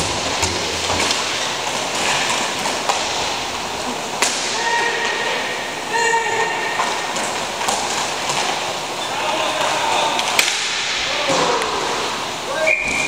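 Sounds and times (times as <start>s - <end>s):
skate wheels rolling on rink: 0.0s - 13.0s
sharp crack: 4.2s - 4.7s, 10.2s - 11.8s
person shouting: 4.5s - 5.2s, 5.9s - 6.7s.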